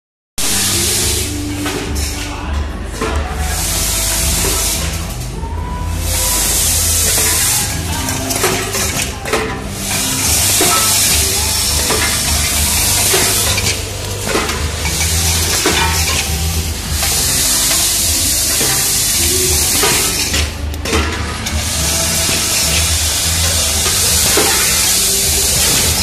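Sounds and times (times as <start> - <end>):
machine low hum: 0.4 - 26.0
small parts rattling in steel bowls: 6.0 - 26.0.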